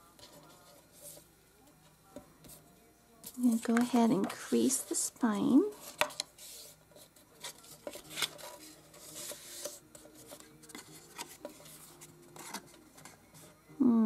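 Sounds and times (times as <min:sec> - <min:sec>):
paper rubbing and scraping: 0:05.7 - 0:13.5.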